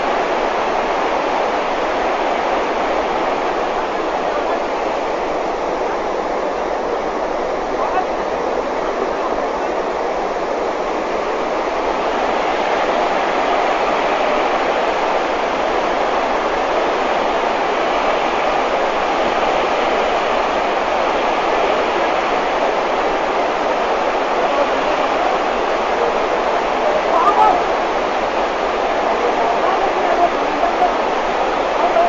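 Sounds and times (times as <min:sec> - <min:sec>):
mountain torrent rushing: 0:00.0 - 0:32.0.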